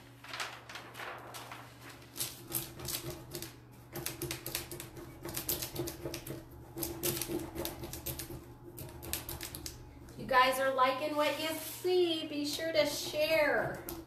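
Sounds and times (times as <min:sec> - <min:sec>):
plastic sheet crinkling: 0:00.0 - 0:03.5.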